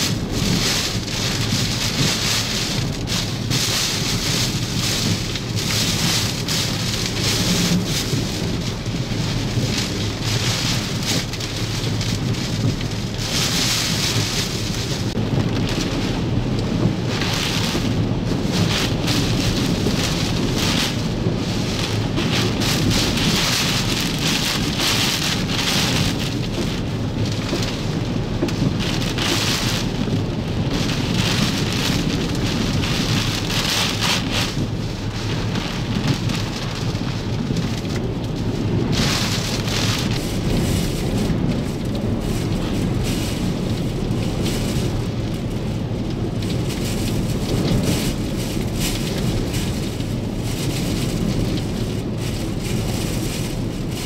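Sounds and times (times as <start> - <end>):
driving rain: 0.0 - 54.0
hurricane wind gusts: 0.0 - 54.0.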